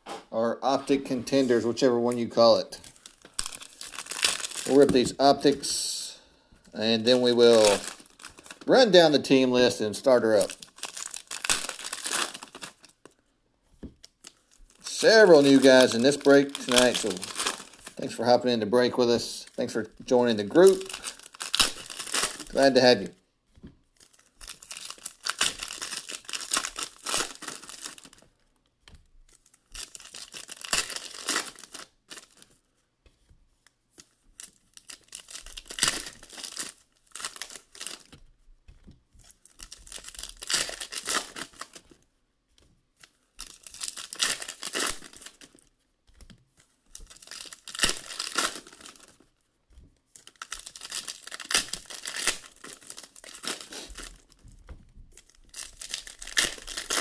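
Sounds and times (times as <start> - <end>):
foil packs tearing and crinkling: 2.8 - 5.5, 6.8 - 13.0, 14.0 - 23.1, 24.0 - 28.2, 29.3 - 32.5, 34.4 - 38.1, 39.3 - 41.9, 43.4 - 45.7, 47.0 - 49.3, 50.1 - 54.4, 55.2 - 57.0.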